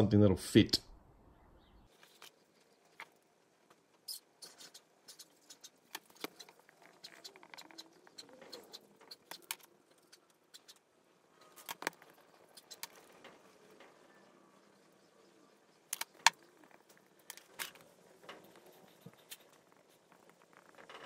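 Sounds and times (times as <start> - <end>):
marker squeaking on whiteboard: 3.8 - 13.5, 15.8 - 21.0.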